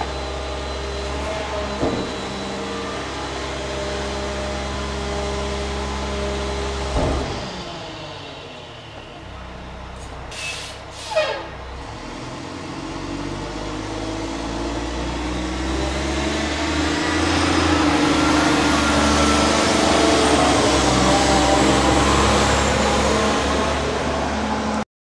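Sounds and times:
garbage truck engine accelerating: 0:00.0 - 0:24.8
short air hisses: 0:10.3 - 0:11.4.

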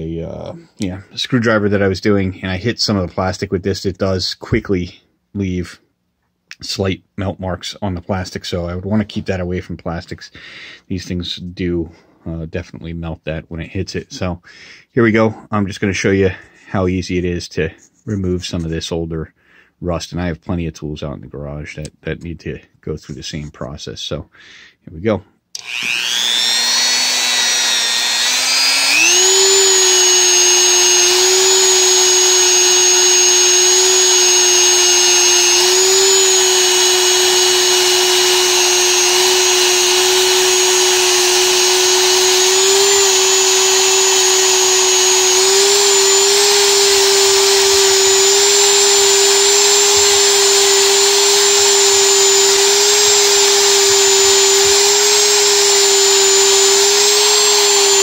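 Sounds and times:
rotary tool motor whine: 0:25.6 - 0:58.0.

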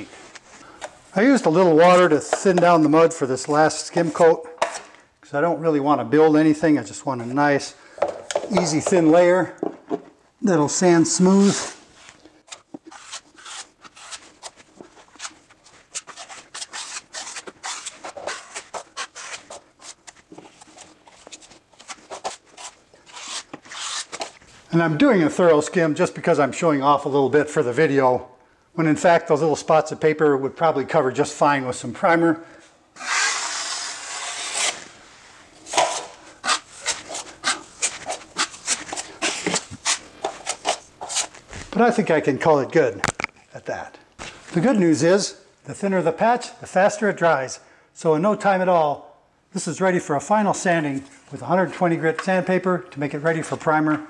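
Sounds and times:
drywall knife wet scrapes: 0:12.5 - 0:24.4, 0:33.0 - 0:34.9, 0:35.6 - 0:41.4
knife scraping metal pan: 0:35.7 - 0:41.3.

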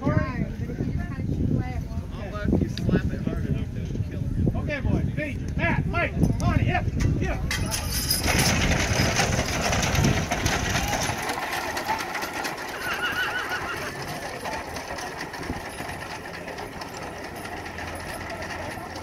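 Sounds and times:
potato digger clattering: 0:07.5 - 0:13.1.

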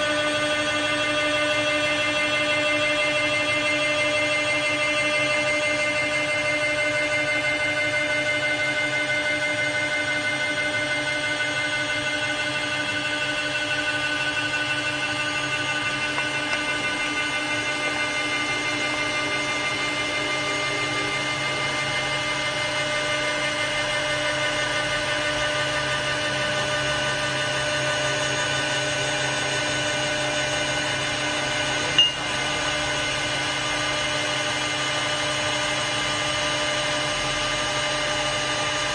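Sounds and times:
cutting spindle whine: 0:00.0 - 0:38.9
wood being cut: 0:11.5 - 0:22.8.

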